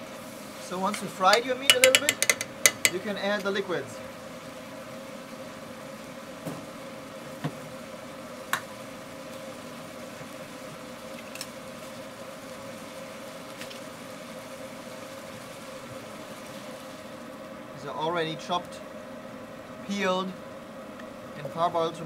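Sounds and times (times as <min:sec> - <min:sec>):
meat sizzling in frying pan: 0:00.0 - 0:17.6
steady mechanical hum: 0:00.0 - 0:22.0
utensil clicking against pan: 0:00.9 - 0:03.0.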